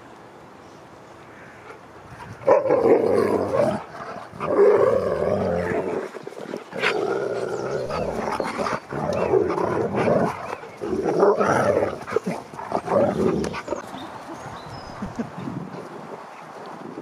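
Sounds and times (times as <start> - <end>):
dogs growling in play: 2.4 - 15.9.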